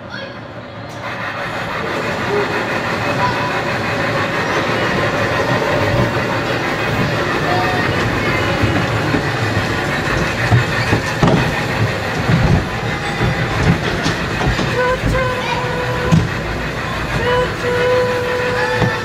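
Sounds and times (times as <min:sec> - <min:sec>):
toy train rumbling on track: 0:00.8 - 0:19.0
train cars knocking and rattling: 0:00.8 - 0:19.0.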